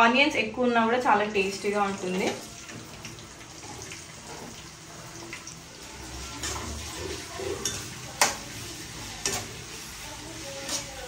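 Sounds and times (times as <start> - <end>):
onions frying in oil: 0.0 - 11.0
metal spatula clanking on pan: 6.3 - 8.6, 9.2 - 9.7, 10.6 - 11.0.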